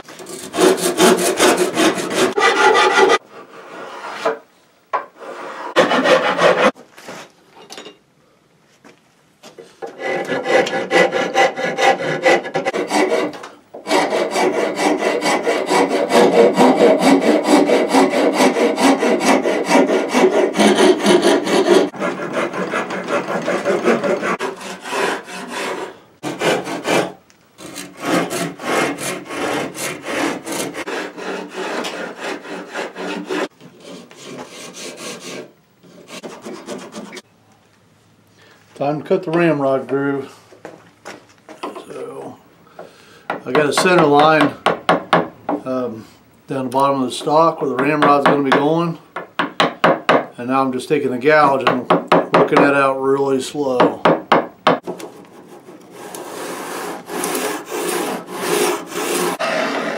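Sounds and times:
hand file rasping on wood: 0:00.1 - 0:04.3, 0:05.2 - 0:06.8, 0:09.9 - 0:37.2, 0:54.8 - 0:59.9.

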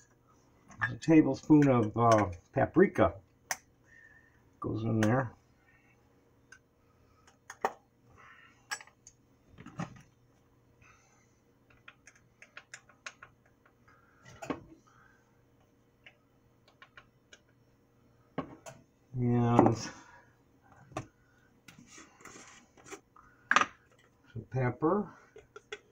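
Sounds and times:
spice containers clicking and tapping: 0:11.7 - 0:13.8, 0:16.0 - 0:17.6, 0:25.3 - 0:25.9.

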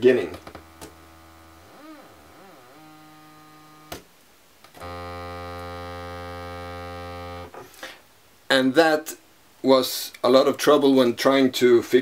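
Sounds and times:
buzzy oscillator drone: 0:00.5 - 0:04.0, 0:04.8 - 0:07.6.

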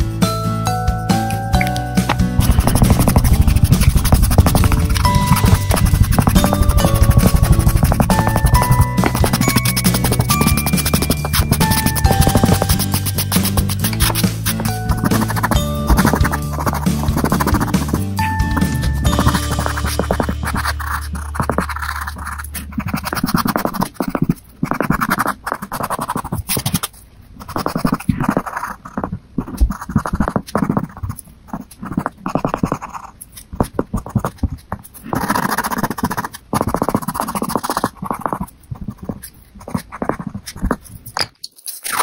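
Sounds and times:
background music: 0:00.0 - 0:22.5
pencil scratching on paper: 0:02.4 - 0:42.0.

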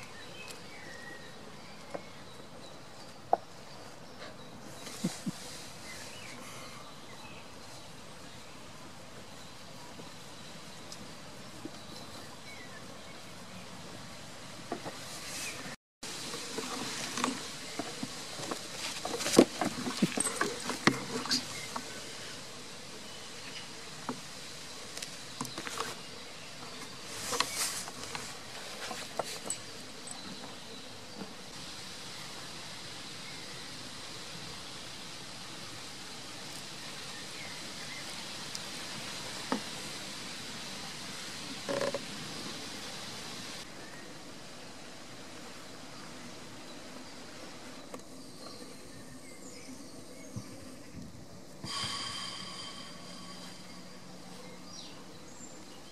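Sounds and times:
faint birds: 0:00.0 - 0:55.9
insects: 0:00.0 - 0:55.9.

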